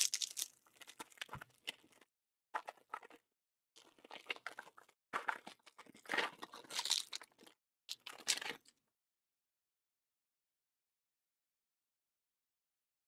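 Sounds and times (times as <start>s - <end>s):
cellophane wrapper tearing and crinkling: 0.0s - 1.2s, 6.4s - 7.2s.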